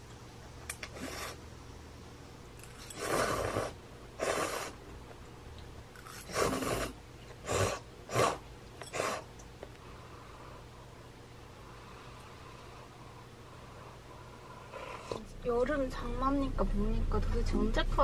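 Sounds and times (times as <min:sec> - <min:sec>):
person slurping broth: 0:06.1 - 0:09.3.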